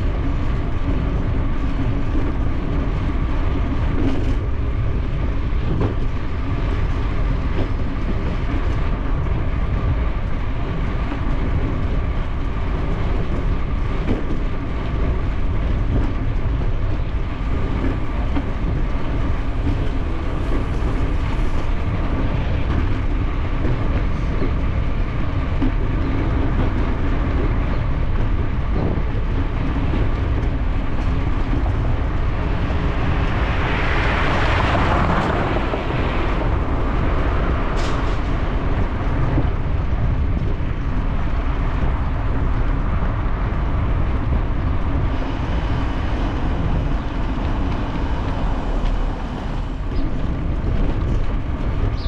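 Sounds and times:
wind buffeting microphone: 0:00.0 - 0:52.0
bicycle rolling on pavement: 0:27.2 - 0:52.0.

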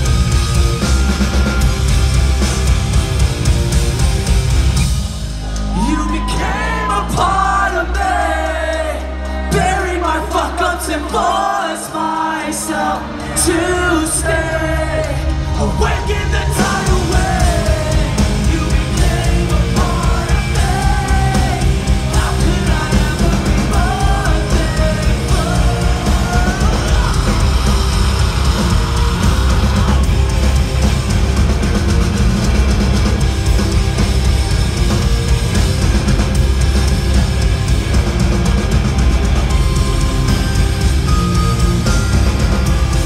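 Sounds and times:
distorted guitars: 0:00.0 - 0:43.0
drums: 0:00.0 - 0:43.0
live rock band with singer: 0:00.0 - 0:43.0.

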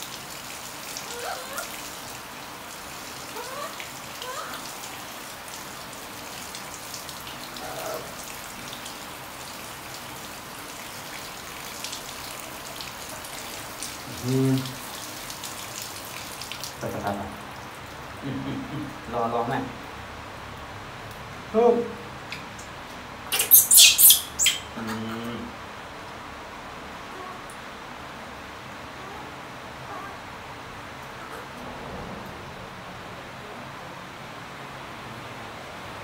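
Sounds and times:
shower water spattering: 0:00.0 - 0:18.4, 0:23.3 - 0:24.8.

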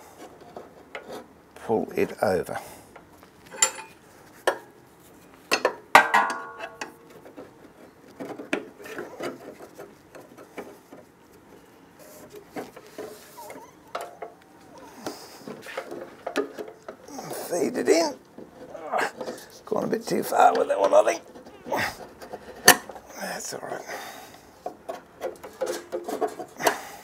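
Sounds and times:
metal lever clinking on wheel: 0:03.5 - 0:04.0.

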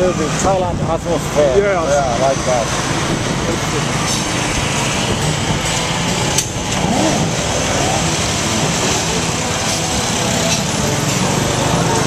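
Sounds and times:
wind and road noise: 0:00.0 - 0:12.0
small motorbike engine running: 0:02.7 - 0:12.0.

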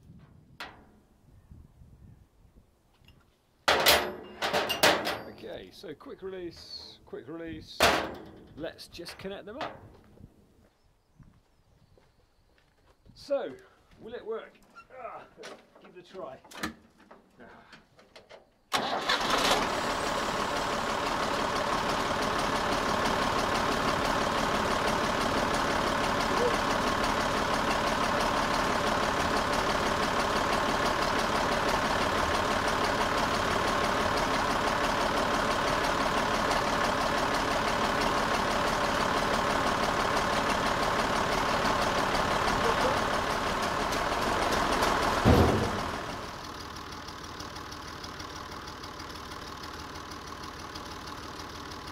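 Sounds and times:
tractor engine idling: 0:03.7 - 0:10.3, 0:15.8 - 0:51.9
loud thump: 0:45.2 - 0:46.1.

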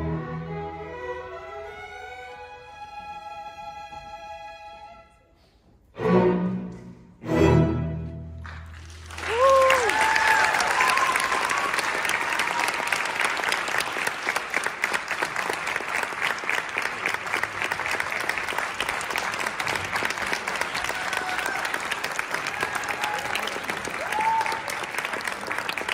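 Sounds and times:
audience applauding: 0:08.4 - 0:25.9.

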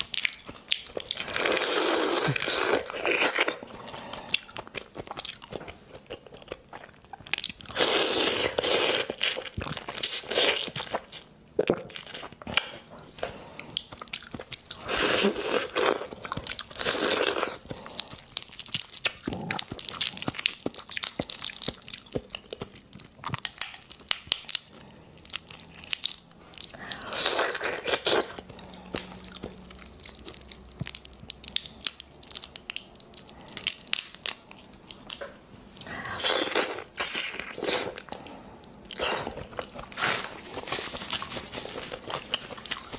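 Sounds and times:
shrimp shells crackling: 0:29.6 - 0:35.1.

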